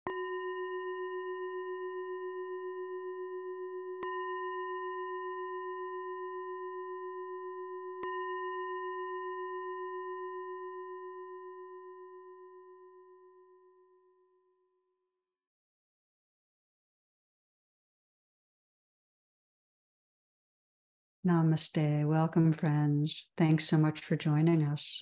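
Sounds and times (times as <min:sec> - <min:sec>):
singing bowl ringing: 0:00.0 - 0:14.6.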